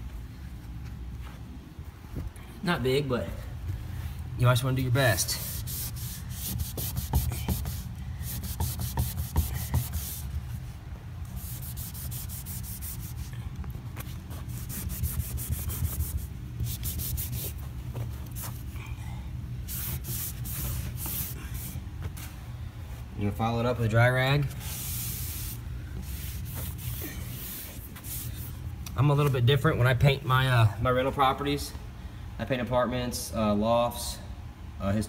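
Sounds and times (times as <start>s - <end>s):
wet rag scrubbing: 5.3s - 13.4s, 14.0s - 18.7s, 19.6s - 21.8s, 24.5s - 28.6s.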